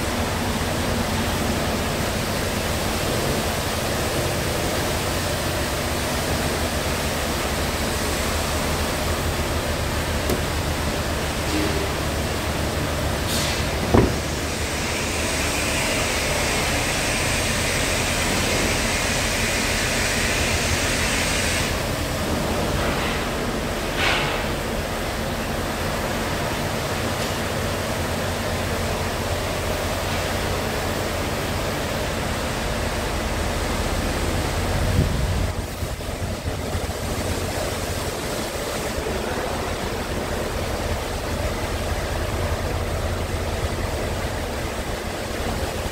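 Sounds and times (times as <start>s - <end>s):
diesel truck engine idling: 0.0s - 18.4s, 24.5s - 45.9s
thump: 13.8s - 14.3s.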